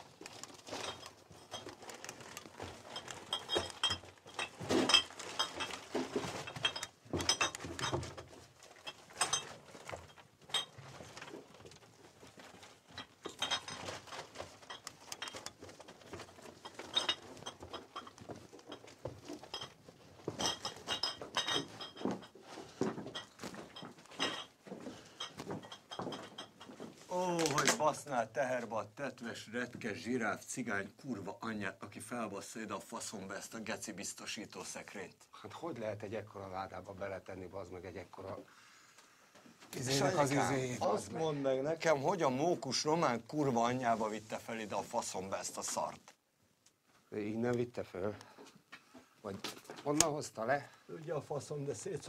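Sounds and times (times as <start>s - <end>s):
small metallic clinks: 0.2s - 11.8s, 12.4s - 26.9s.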